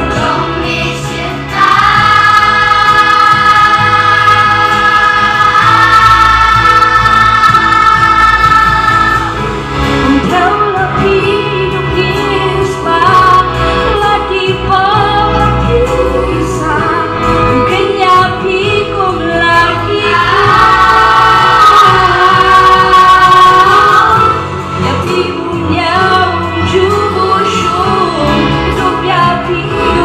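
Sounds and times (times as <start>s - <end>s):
children's choir singing: 0.0s - 9.6s, 19.6s - 24.4s
girl singing into microphone: 10.0s - 30.0s.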